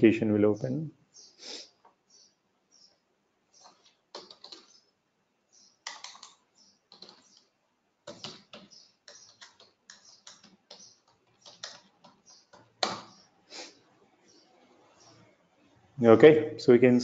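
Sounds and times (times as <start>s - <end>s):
typing on computer keyboard: 3.6s - 4.8s, 5.8s - 13.1s.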